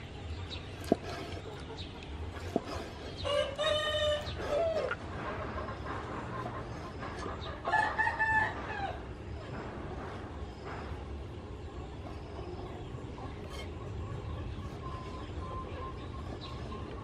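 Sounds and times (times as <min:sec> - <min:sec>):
rooster crowing: 0:03.2 - 0:04.9, 0:07.6 - 0:09.0.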